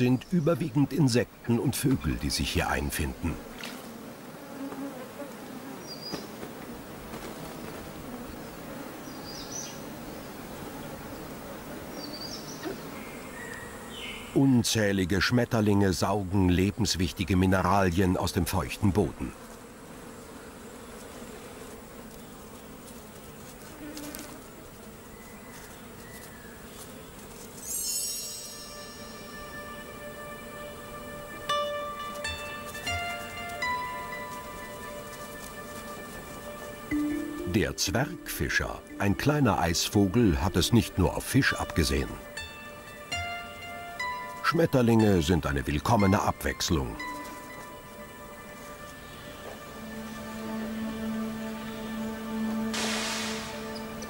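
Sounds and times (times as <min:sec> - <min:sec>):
insects buzzing: 0:00.0 - 0:54.0
music with chiming tones: 0:27.7 - 0:30.8, 0:36.8 - 0:39.2, 0:42.3 - 0:49.3.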